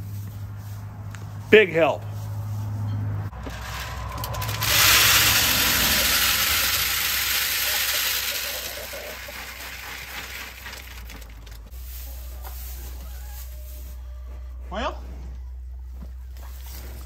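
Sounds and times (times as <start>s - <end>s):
grain feed pouring into feeder: 3.3s - 11.7s.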